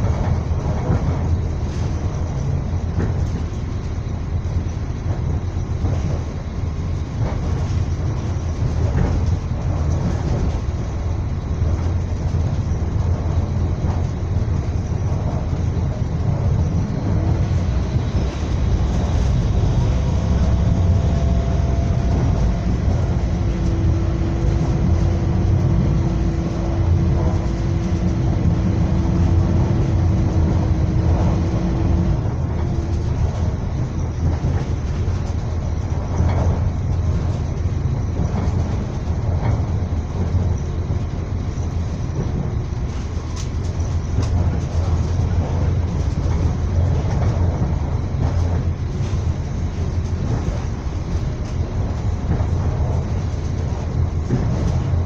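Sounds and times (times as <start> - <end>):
train rumble: 0.0 - 55.0.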